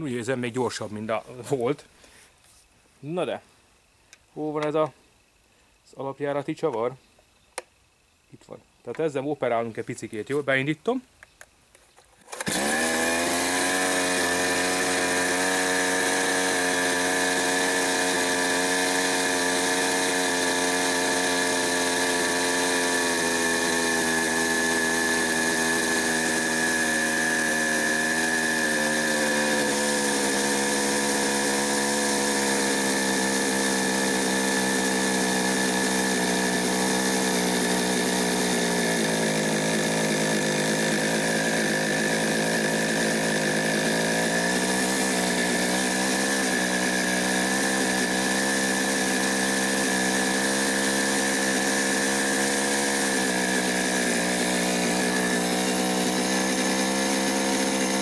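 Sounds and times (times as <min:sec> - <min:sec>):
starter cord pull: 0:12.2 - 0:16.3
chainsaw engine idling: 0:12.2 - 0:58.0.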